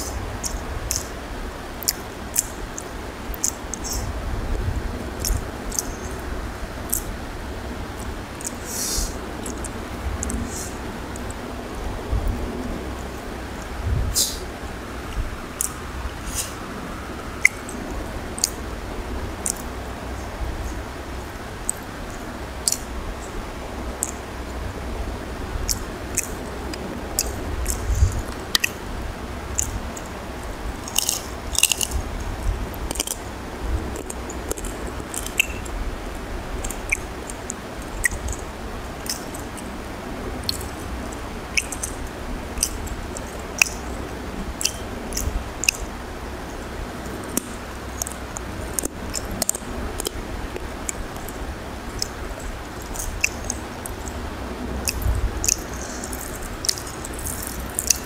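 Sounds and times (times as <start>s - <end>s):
hand mixing food on a plate: 0.0s - 4.1s, 23.6s - 58.0s
chewing: 1.8s - 4.1s, 5.2s - 6.3s, 6.9s - 7.1s, 15.6s - 16.6s, 17.4s - 18.6s, 19.4s - 19.7s, 21.6s - 22.9s, 24.0s - 24.2s, 25.7s - 28.8s, 29.5s - 30.2s, 30.8s - 33.3s, 33.9s - 39.7s, 40.4s - 45.9s, 47.0s - 58.0s.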